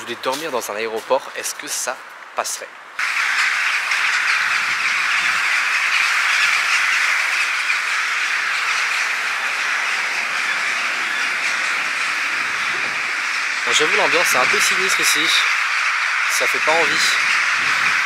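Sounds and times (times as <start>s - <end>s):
flock of birds calling: 0.0s - 18.0s.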